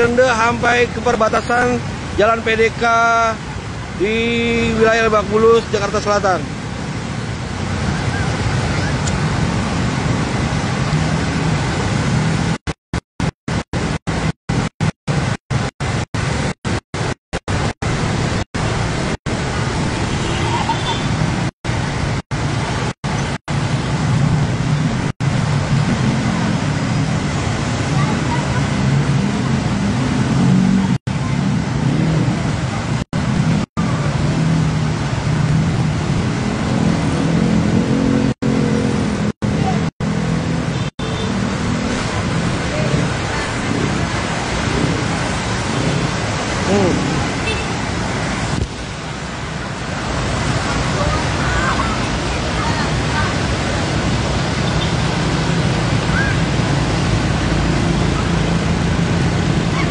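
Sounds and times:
vehicle engines rumbling: 0.0s - 59.9s
water washing around wheels: 0.0s - 59.9s.

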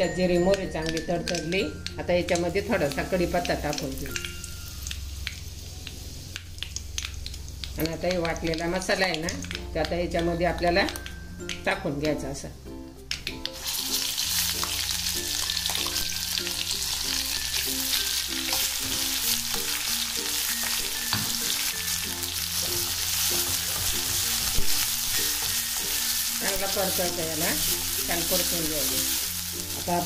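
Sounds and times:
soft background music: 0.0s - 30.0s
paste sizzling in hot oil: 2.5s - 9.1s, 13.4s - 30.0s.

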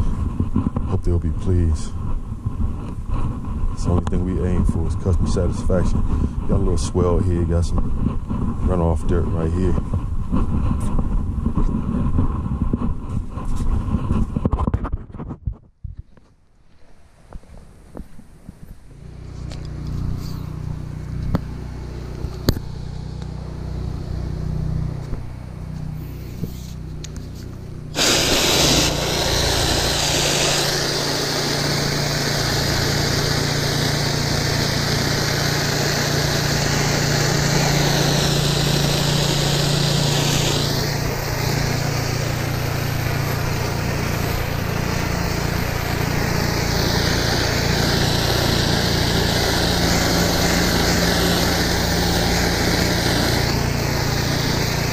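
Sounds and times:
pressure washer engine running: 18.9s - 54.9s
high-pressure water spraying: 27.8s - 54.9s.

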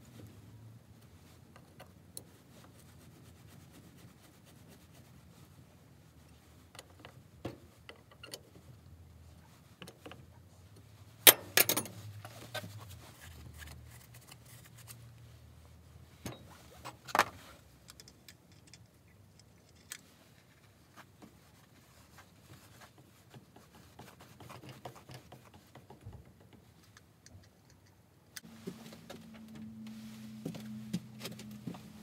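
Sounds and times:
metal tools clinking on bench: 11.3s - 12.0s.

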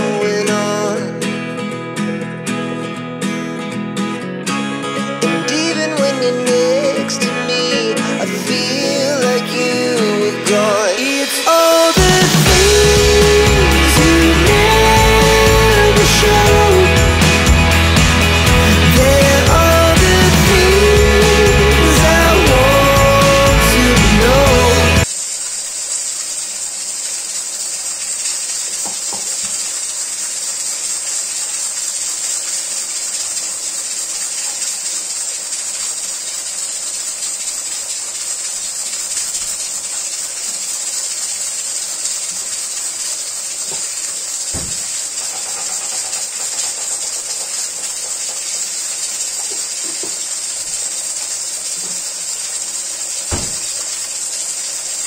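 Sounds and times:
food sizzling in a pot: 7.5s - 55.0s
light knocks: 44.5s - 44.9s, 53.3s - 53.8s.

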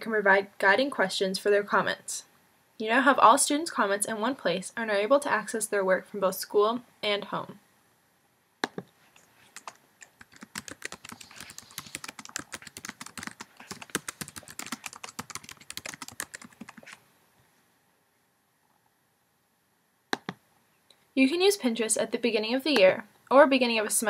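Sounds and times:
computer keyboard typing: 9.4s - 17.0s.

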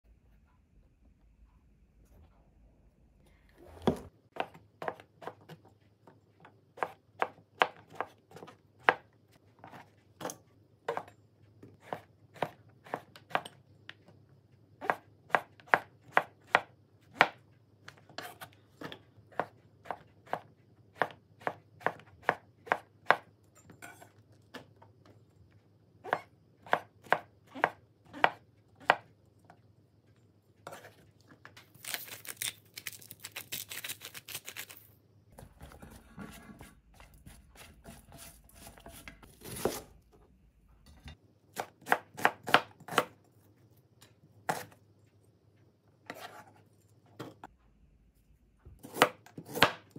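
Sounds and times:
knife chopping on cutting board: 19.3s - 23.3s, 35.6s - 39.9s, 41.6s - 43.2s, 44.5s - 44.8s, 48.8s - 49.9s.

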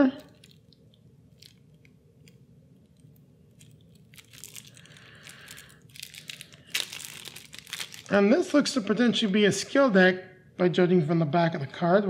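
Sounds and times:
plastic wrap crinkling and tearing: 0.0s - 8.2s.

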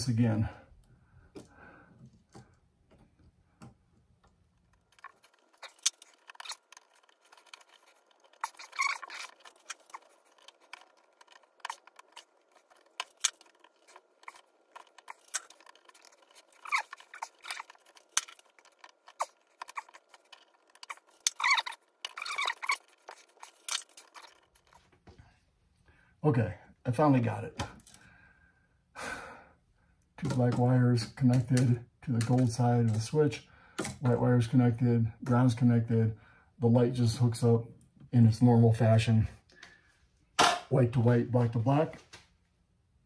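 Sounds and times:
metallic clicks and scrapes of wires: 4.2s - 25.0s.

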